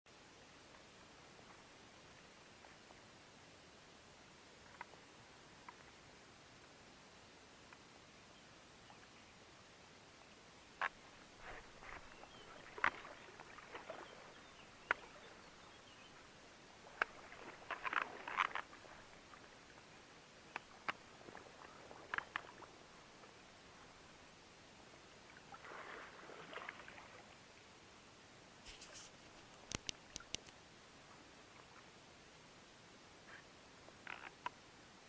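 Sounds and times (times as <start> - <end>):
small water splashes: 10.8 - 19.8, 20.5 - 23.3, 25.3 - 27.4
fishing gear clicks: 28.7 - 30.6.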